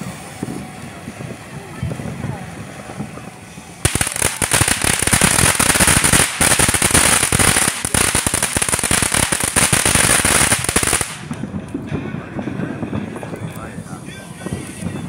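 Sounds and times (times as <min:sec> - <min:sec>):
firework spraying sparks: 0:00.0 - 0:11.6.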